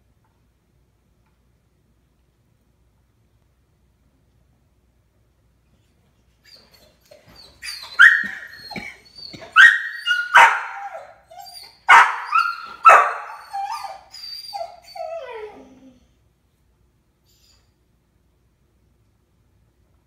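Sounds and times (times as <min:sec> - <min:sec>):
dog whining: 0:05.8 - 0:16.1
dog barking: 0:08.0 - 0:08.5, 0:09.6 - 0:11.0, 0:11.9 - 0:13.4.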